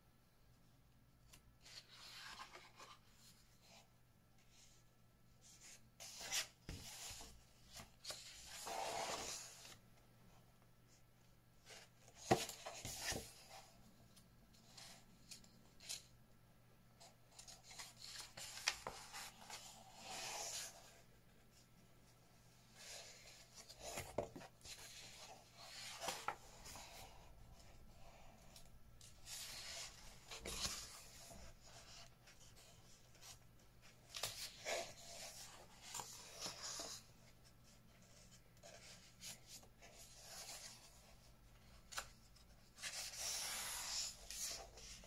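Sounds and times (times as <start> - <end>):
paper pages turning and rustling: 1.3 - 3.8, 5.6 - 9.8, 17.3 - 21.0, 22.8 - 27.7, 28.5 - 37.1.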